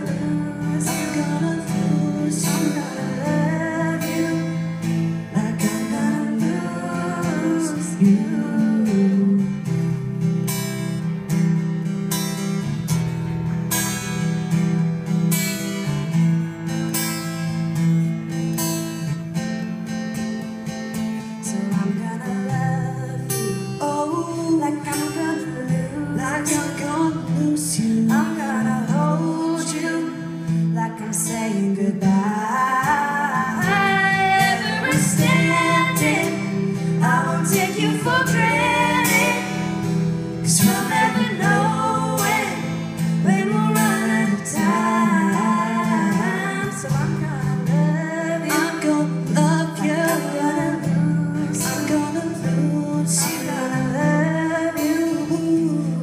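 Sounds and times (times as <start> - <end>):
man singing: 0.0 - 4.7, 5.3 - 9.4
woman singing: 0.0 - 10.1, 21.4 - 56.0
strummed acoustic guitar: 0.0 - 56.0.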